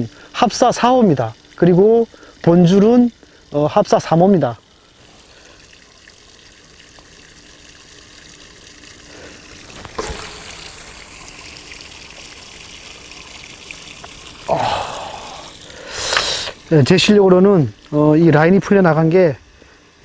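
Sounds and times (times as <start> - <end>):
fishing line hissing off reel: 9.7 - 11.1, 15.0 - 16.6.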